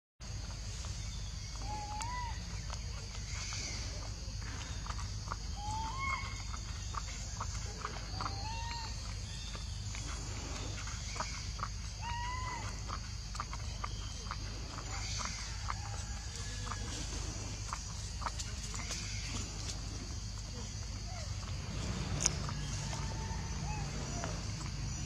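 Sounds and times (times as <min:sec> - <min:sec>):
whistled animal calls: 0:01.6 - 0:04.0, 0:05.4 - 0:09.5, 0:12.0 - 0:13.0, 0:21.1 - 0:24.7.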